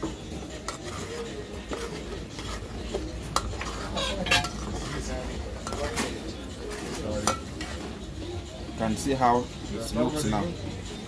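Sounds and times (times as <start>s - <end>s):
spoon stirring thick sauce: 0.0s - 8.0s
spoon scraping and clinking pot: 0.5s - 7.8s.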